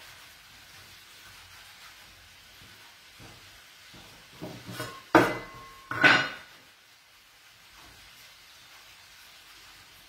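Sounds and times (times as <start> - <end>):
metal scraper knocking on wood: 4.4 - 6.4.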